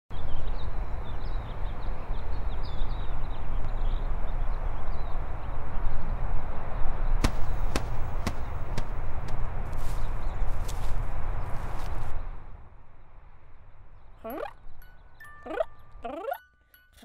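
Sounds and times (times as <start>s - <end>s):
small birds chirping: 0.1s - 12.4s, 13.0s - 16.9s
sharp tap: 7.2s - 9.4s
steady rushing background: 7.2s - 12.2s.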